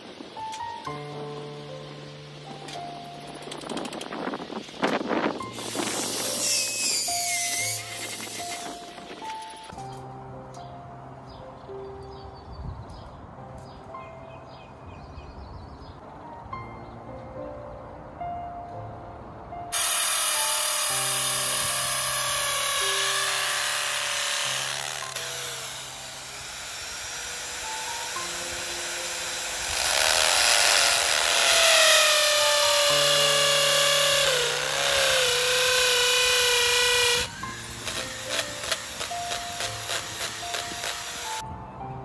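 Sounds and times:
drill grinding into concrete: 5.5s - 8.9s, 19.8s - 41.4s.

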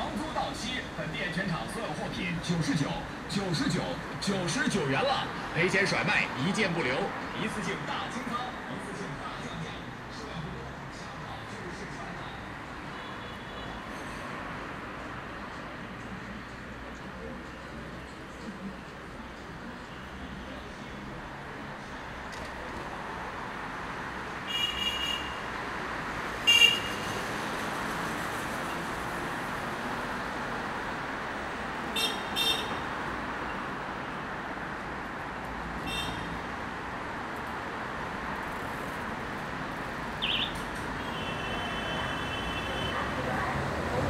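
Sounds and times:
city street traffic: 0.0s - 44.0s
vehicle horn beeps: 24.5s - 25.4s, 26.5s - 27.2s.

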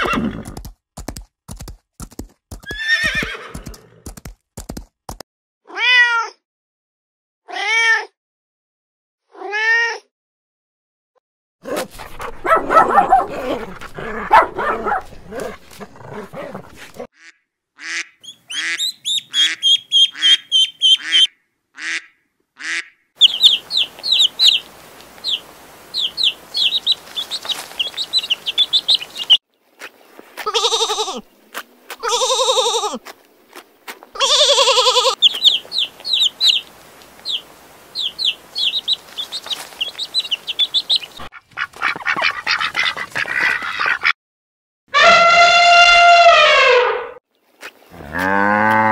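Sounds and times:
ducklings peeping: 18.2s - 21.3s, 23.2s - 29.4s, 34.3s - 44.1s
sheep bleating: 30.4s - 31.2s, 32.0s - 33.0s, 34.2s - 35.2s.

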